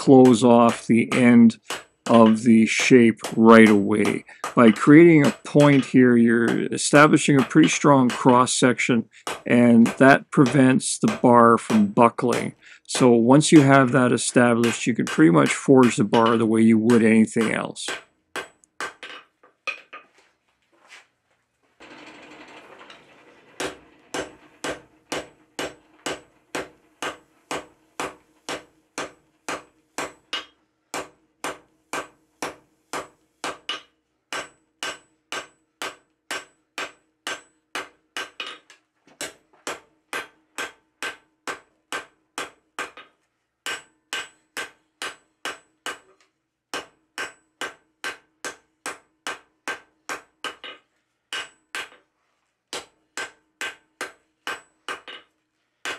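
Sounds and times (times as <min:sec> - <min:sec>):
anvil ringing: 0:00.0 - 0:08.5, 0:23.6 - 0:32.1
hammer striking hot steel: 0:00.0 - 0:19.1, 0:23.6 - 0:38.6, 0:39.2 - 0:46.1, 0:46.8 - 0:51.9, 0:52.8 - 0:55.2.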